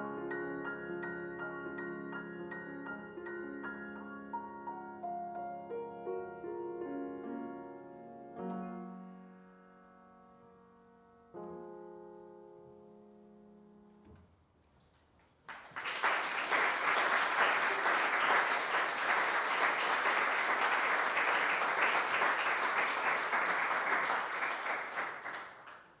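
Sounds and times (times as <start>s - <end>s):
piano chord: 0.0s - 14.2s
audience applause: 15.4s - 26.0s.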